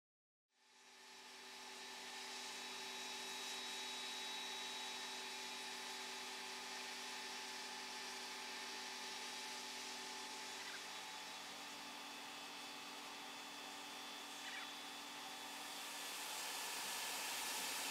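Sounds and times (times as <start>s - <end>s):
whirring hum: 0.8s - 17.9s.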